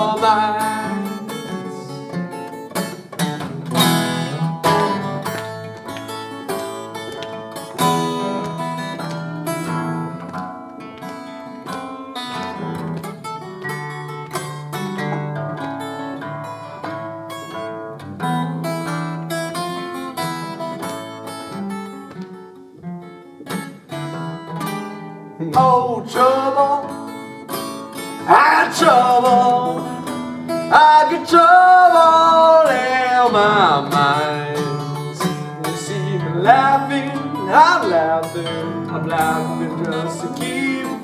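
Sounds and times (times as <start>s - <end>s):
man's wordless singing: 0.0s - 2.1s, 25.4s - 27.0s, 28.2s - 41.0s
fingerpicked acoustic guitar blues: 0.0s - 41.0s.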